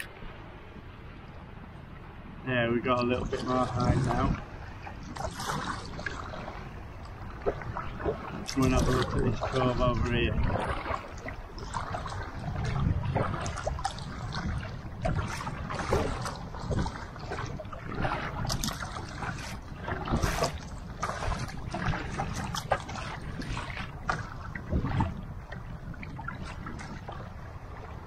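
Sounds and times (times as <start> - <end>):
water lapping against kayak hull: 0.0 - 28.0
sharp paddle splashes: 5.0 - 6.6, 7.4 - 27.2.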